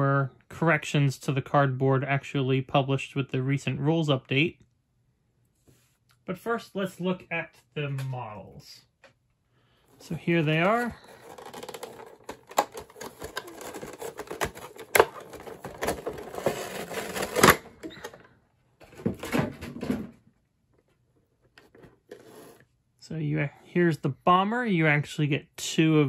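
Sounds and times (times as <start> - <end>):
plastic blister tray crackling: 10.1 - 17.8.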